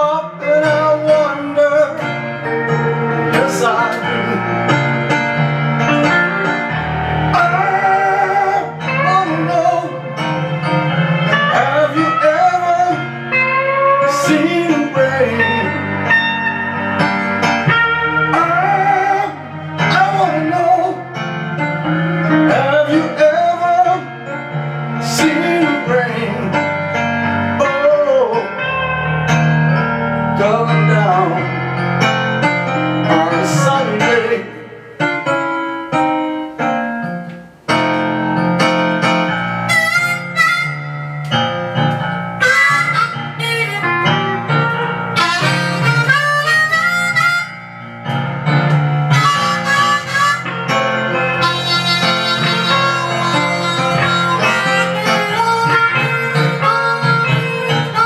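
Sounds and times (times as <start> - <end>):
electric guitar lead: 0.0 - 58.0
harmonica solo: 1.0 - 27.7, 38.3 - 58.0.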